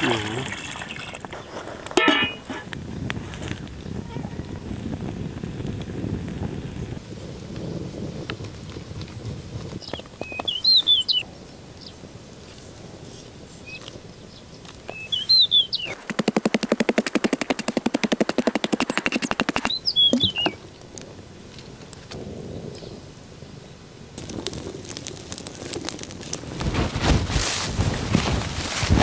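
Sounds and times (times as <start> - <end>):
birds chirping: 0.0 - 3.1, 9.8 - 12.1, 12.7 - 21.0
loud rapid rattle: 16.0 - 19.7.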